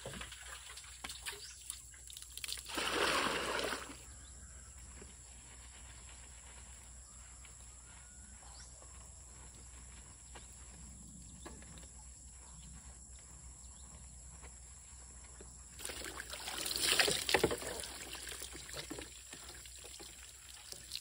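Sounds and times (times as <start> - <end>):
water splashing over hair: 0.0 - 4.0, 15.8 - 21.0
faint outdoor background: 0.0 - 21.0.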